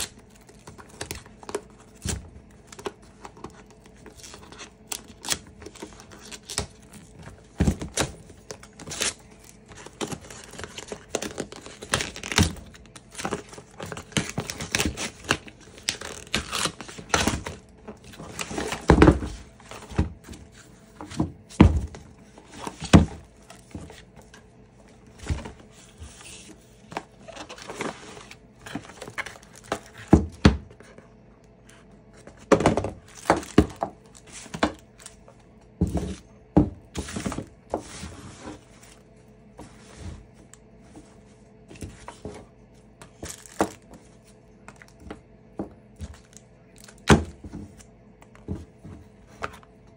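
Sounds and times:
box knocking and thunking: 21.0s - 22.1s.

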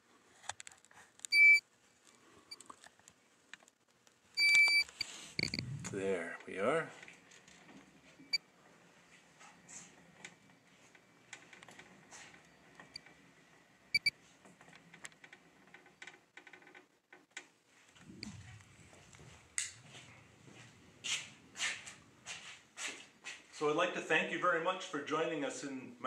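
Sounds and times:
low rumble: 5.4s - 6.3s, 18.0s - 22.8s.

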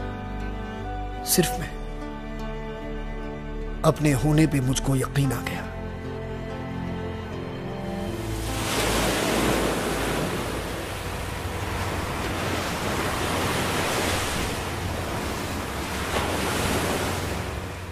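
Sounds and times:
water rushing and splashing: 7.8s - 17.9s.

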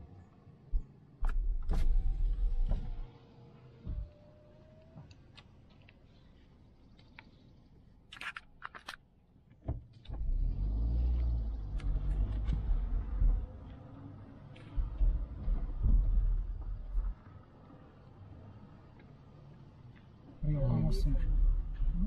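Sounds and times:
car rumbling over rough track: 10.1s - 22.0s.

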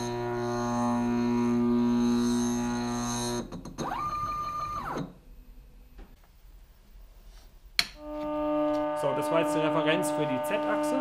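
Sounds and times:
stepper motor whine: 0.0s - 5.1s, 8.0s - 11.0s
stepper motor humming: 8.0s - 11.0s.

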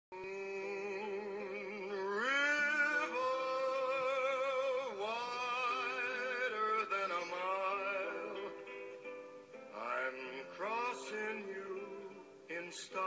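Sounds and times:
singing voice with vibrato: 0.2s - 8.7s.

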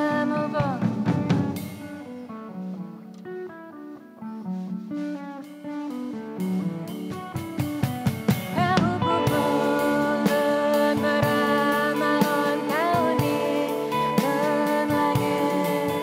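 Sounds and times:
person singing: 0.0s - 2.1s, 8.4s - 16.0s
band with drums and electric guitar: 0.0s - 16.0s.

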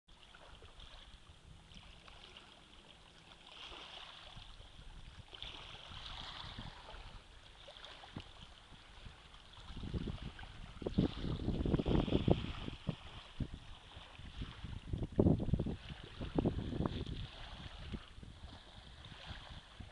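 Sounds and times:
water lapping over shingle: 0.1s - 19.9s
wind buffeting microphone: 4.0s - 19.9s.

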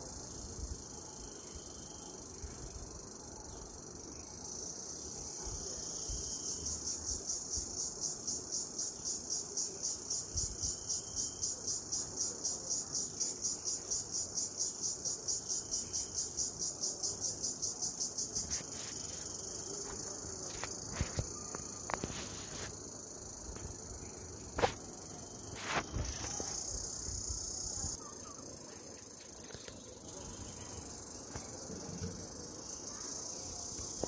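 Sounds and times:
steady insect buzz: 0.0s - 34.0s.

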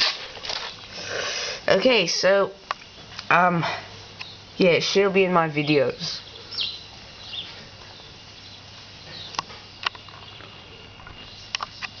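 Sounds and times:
steady low hum: 0.0s - 12.0s
faint high bird chirps: 5.6s - 9.4s.

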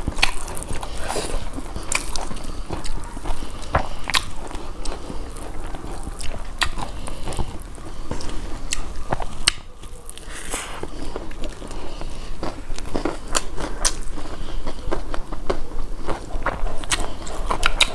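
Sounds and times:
chewing and biting: 0.0s - 17.9s.

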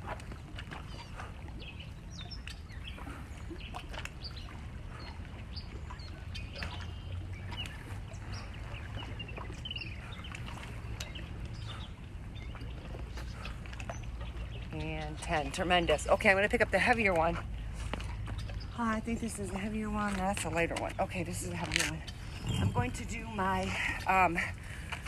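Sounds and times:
birds chirping: 18.3s - 25.0s
low rumble: 21.4s - 24.9s.

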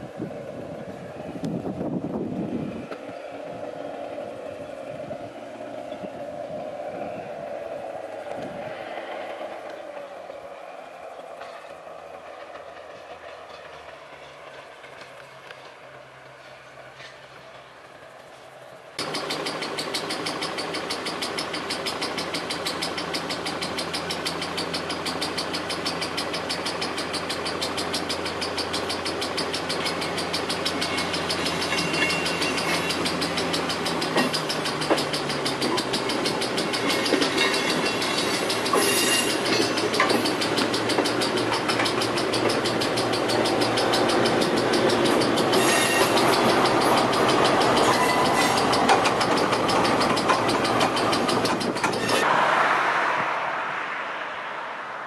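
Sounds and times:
wheels clicking over rail joints: 0.0s - 52.4s
diesel railcar engine: 0.0s - 55.0s
crossing warning bell ringing: 19.0s - 52.3s.

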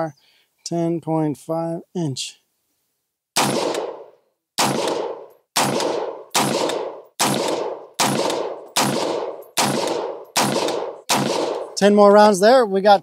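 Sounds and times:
gunshots with ringing decay: 3.4s - 12.0s.

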